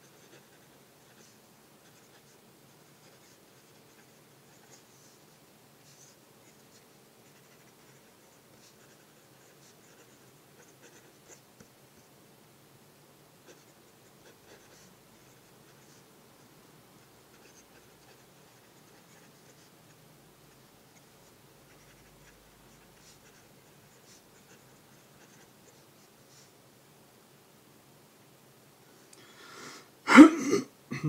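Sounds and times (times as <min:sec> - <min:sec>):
fountain pen scratching on paper: 0:00.0 - 0:05.2, 0:05.8 - 0:11.5, 0:13.4 - 0:16.1, 0:17.3 - 0:19.7, 0:20.9 - 0:26.5.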